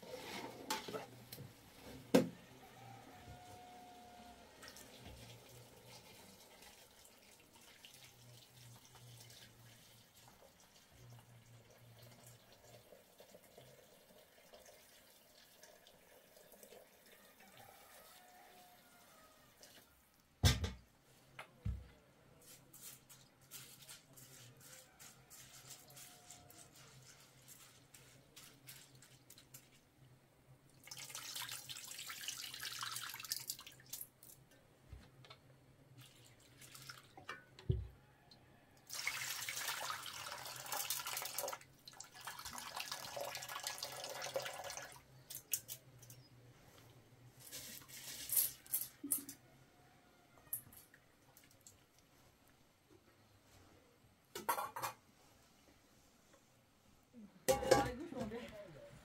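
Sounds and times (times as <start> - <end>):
water dripping and trickling: 4.6 - 19.0, 30.7 - 34.6, 36.0 - 37.4, 38.8 - 46.2, 50.6 - 52.1.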